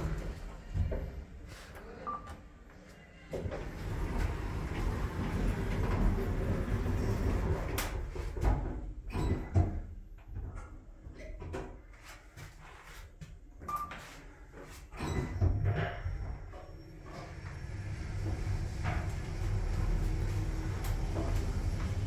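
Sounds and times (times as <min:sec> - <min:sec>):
sliding doors closing: 0:00.0 - 0:01.7, 0:03.3 - 0:09.9, 0:15.0 - 0:22.0
elevator rumble and rattling: 0:03.4 - 0:09.6, 0:15.0 - 0:22.0.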